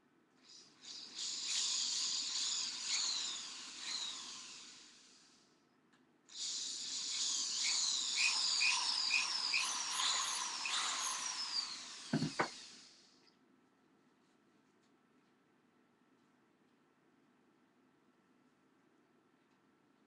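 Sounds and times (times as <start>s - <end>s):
cordless drill motor whine: 0.4s - 5.4s, 6.3s - 13.1s.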